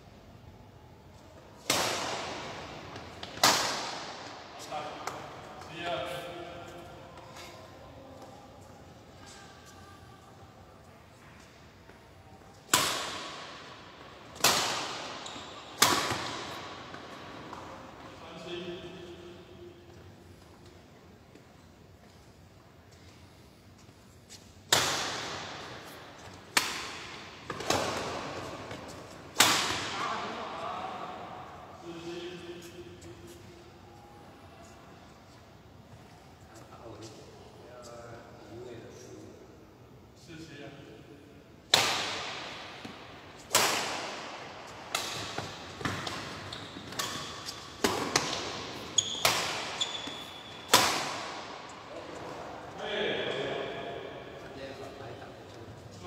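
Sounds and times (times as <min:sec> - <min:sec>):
rackets striking a shuttlecock: 0:12.6 - 0:13.7, 0:14.3 - 0:17.6, 0:24.7 - 0:30.0, 0:41.7 - 0:51.8
shoes squeaking on court floor: 0:15.0 - 0:18.2, 0:45.1 - 0:50.8.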